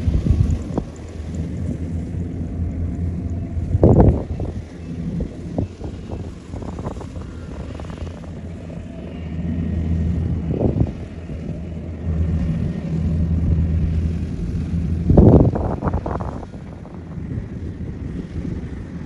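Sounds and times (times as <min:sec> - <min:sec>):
combine harvester diesel engine: 0:00.0 - 0:19.0.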